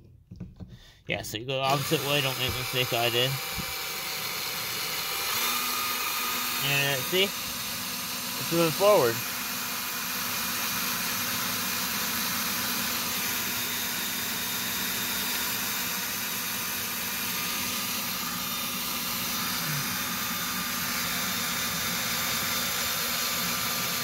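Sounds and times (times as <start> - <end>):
power drill running steadily: 1.6 - 24.0.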